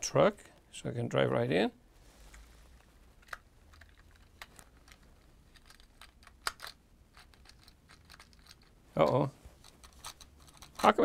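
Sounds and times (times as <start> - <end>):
toy car clicks and taps: 9.8 - 11.0.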